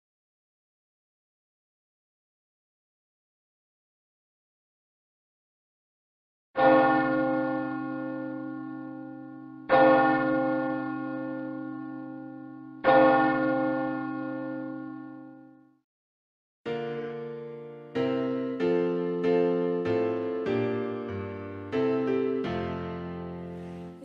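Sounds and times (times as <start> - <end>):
church bell tolling: 6.6 - 15.7, 16.8 - 24.0.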